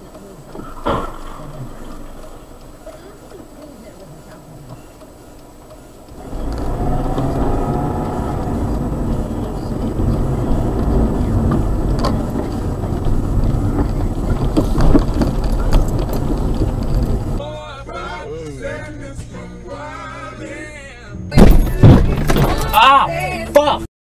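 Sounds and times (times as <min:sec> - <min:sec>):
car engine and road noise: 0:00.0 - 0:17.4, 0:21.3 - 0:23.9
sharp clicks: 0:00.0 - 0:17.4.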